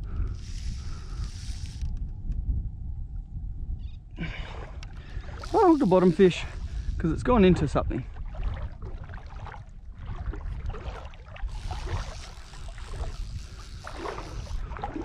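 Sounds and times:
wind buffeting microphone: 0:00.0 - 0:15.0
water sloshing in shallow surf: 0:04.5 - 0:15.0.

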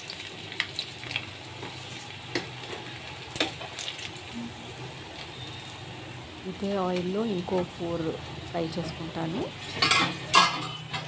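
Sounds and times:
oil crackling and popping: 0:00.0 - 0:08.6
fish sizzling in hot oil: 0:00.0 - 0:11.0.

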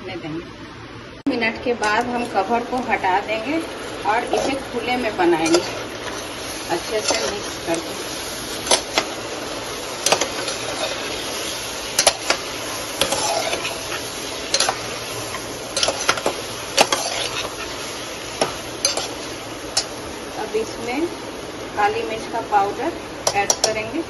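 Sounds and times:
food sizzling: 0:01.3 - 0:24.0
metal spoon scraping pot: 0:05.4 - 0:07.8, 0:10.0 - 0:19.2.

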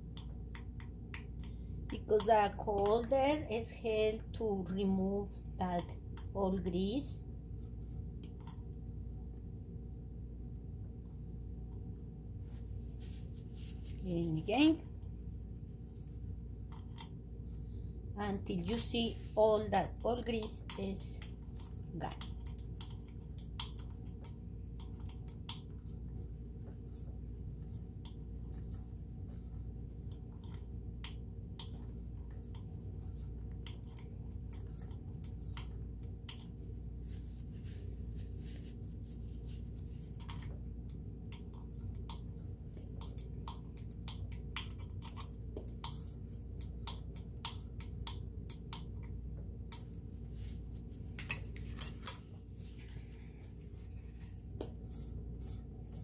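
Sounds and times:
steady low hum: 0:00.0 - 0:56.0
cloth wiping parts: 0:12.4 - 0:14.8, 0:36.7 - 0:40.4, 0:50.1 - 0:56.0.

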